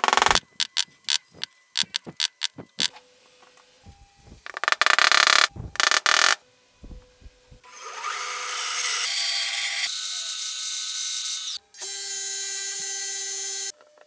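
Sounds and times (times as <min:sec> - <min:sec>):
band saw cutting board: 0:00.0 - 0:03.0
wood sanding against disc: 0:00.0 - 0:03.0
disc sander whining: 0:00.0 - 0:07.6.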